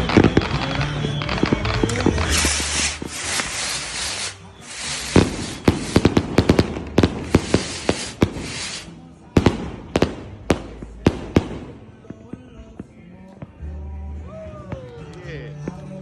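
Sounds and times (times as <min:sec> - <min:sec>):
firework hiss: 0:00.0 - 0:11.9
firework cracks and pops: 0:00.0 - 0:13.6.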